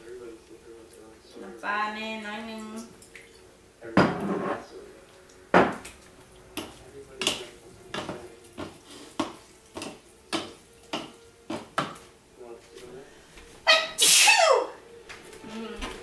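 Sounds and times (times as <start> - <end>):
wooden utensils knocking in bowl: 5.6 - 12.1.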